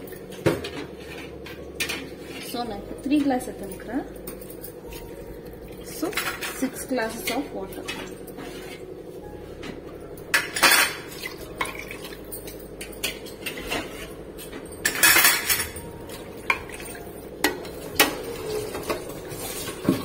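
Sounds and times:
metal skimmer scraping a pot: 0:00.6 - 0:02.9, 0:05.8 - 0:09.0, 0:12.8 - 0:15.6, 0:16.4 - 0:20.0.

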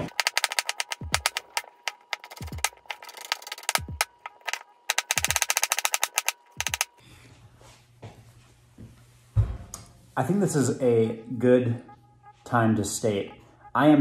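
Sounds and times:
music with deep beat: 0:00.9 - 0:01.8, 0:02.4 - 0:02.8, 0:03.6 - 0:05.5.

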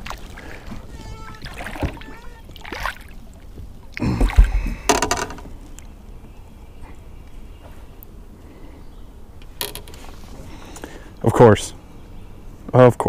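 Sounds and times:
fish splashing: 0:00.0 - 0:05.6
knocks against boat: 0:04.2 - 0:05.5.

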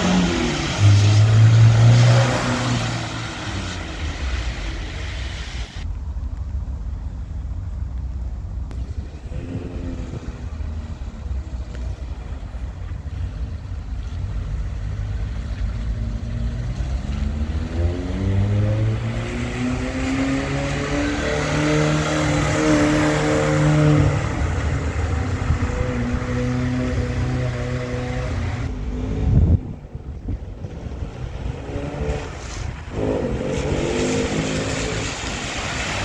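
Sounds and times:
car engine accelerating: 0:00.0 - 0:05.9, 0:08.6 - 0:36.0
steady low rumble: 0:03.9 - 0:16.0, 0:28.6 - 0:35.8.

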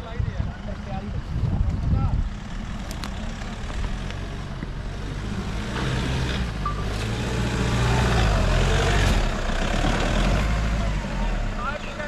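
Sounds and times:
engine pulling under load: 0:02.3 - 0:12.0.

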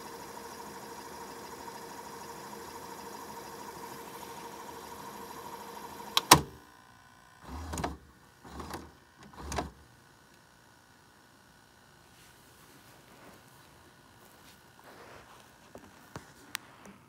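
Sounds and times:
tape rewinding whine: 0:00.0 - 0:06.6
whirring clunks of tape mechanism: 0:00.1 - 0:06.7, 0:07.4 - 0:09.8.

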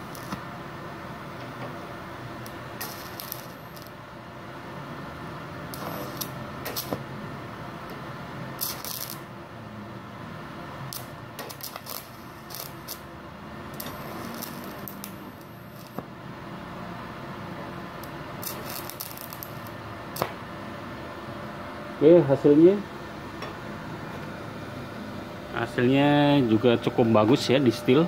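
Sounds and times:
welding arc hissing and crackling: 0:00.0 - 0:04.0, 0:05.6 - 0:09.4, 0:10.8 - 0:16.7, 0:17.8 - 0:20.5
faint high whine: 0:00.0 - 0:07.6.

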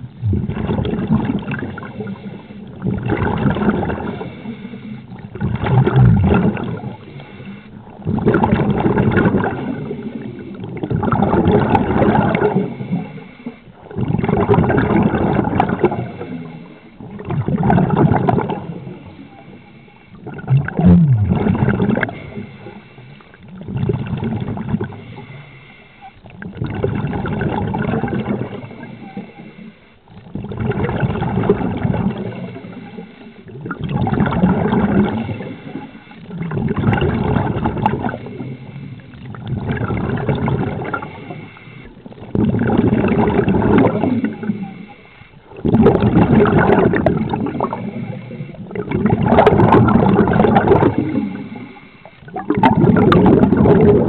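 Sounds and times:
bubbles gurgling: 0:00.0 - 0:54.0
diver breathing through regulator: 0:01.7 - 0:03.0, 0:03.6 - 0:05.2, 0:06.4 - 0:10.7, 0:11.4 - 0:13.8, 0:14.5 - 0:20.3, 0:21.3 - 0:26.3, 0:31.6 - 0:33.6, 0:34.4 - 0:36.5, 0:37.1 - 0:48.9, 0:49.8 - 0:52.4.

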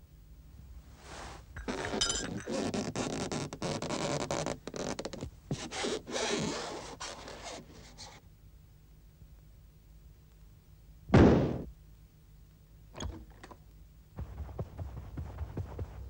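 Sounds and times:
scratchy rubbing and scraping: 0:14.2 - 0:16.0.

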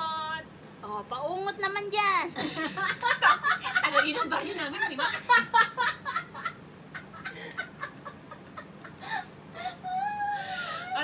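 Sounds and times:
women laughing: 0:02.4 - 0:11.0.

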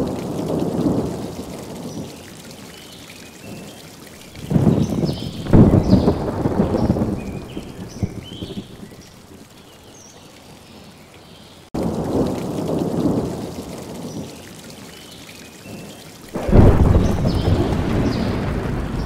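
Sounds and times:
rain patter: 0:00.0 - 0:19.0
thunder rolling: 0:04.4 - 0:09.0, 0:16.3 - 0:19.0.

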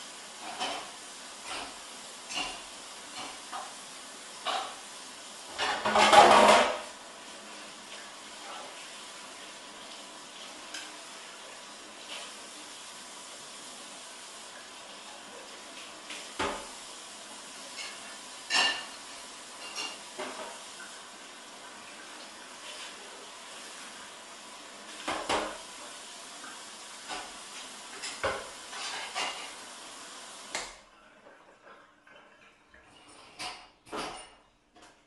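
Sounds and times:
room noise hiss: 0:00.0 - 0:35.0
utensils clinking on steel table: 0:17.8 - 0:19.0, 0:19.6 - 0:20.4.

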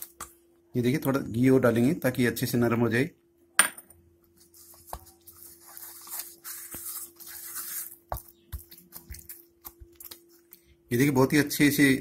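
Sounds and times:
hands squishing dough: 0:04.3 - 0:12.0.

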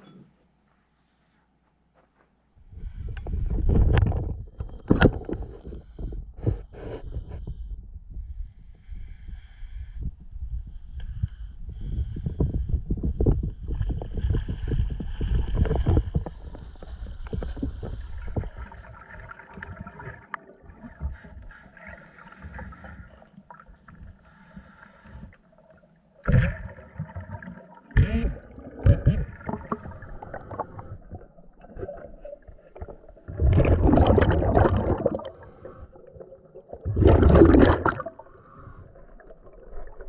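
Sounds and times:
water sloshing and splashing: 0:13.8 - 0:24.2, 0:26.1 - 0:40.0
gush of air bubbles: 0:28.4 - 0:40.0.

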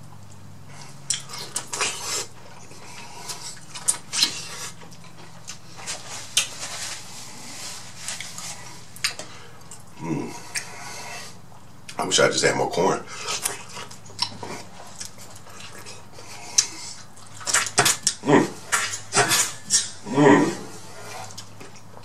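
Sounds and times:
faint low hum: 0:00.0 - 0:22.0
wet eating crunches: 0:00.1 - 0:07.4, 0:13.1 - 0:22.0.

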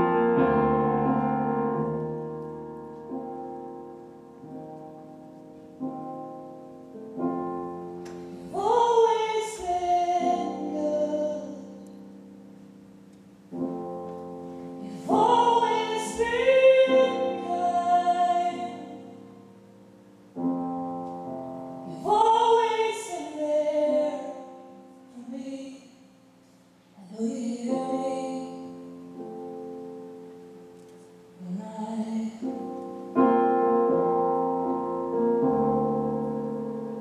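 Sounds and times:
keyboard piano chords: 0:00.0 - 0:25.4, 0:27.3 - 0:37.0
woman singing: 0:08.4 - 0:12.1, 0:14.8 - 0:19.4, 0:21.8 - 0:26.1, 0:27.0 - 0:29.2, 0:31.4 - 0:32.9.

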